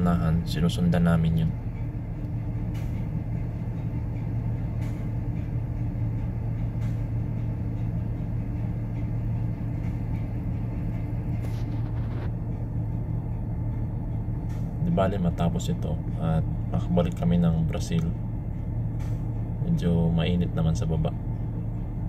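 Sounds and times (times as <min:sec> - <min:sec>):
ship engine humming: 0:00.0 - 0:22.0.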